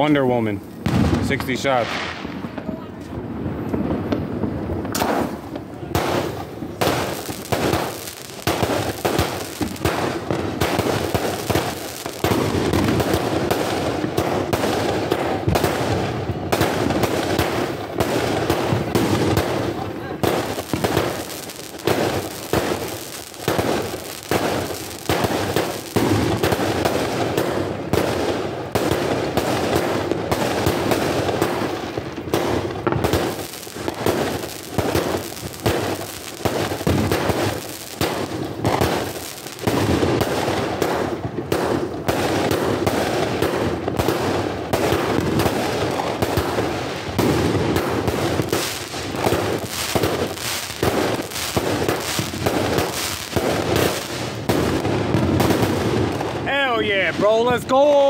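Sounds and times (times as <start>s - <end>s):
firework volley bangs: 0.0s - 58.0s.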